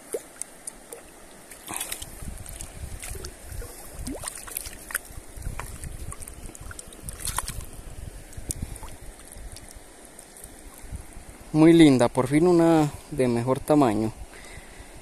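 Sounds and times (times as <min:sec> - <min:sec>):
water sloshing and trickling: 0:00.0 - 0:11.7
small clicks and splashes: 0:00.1 - 0:10.9
wind rumbling on microphone: 0:01.6 - 0:15.0.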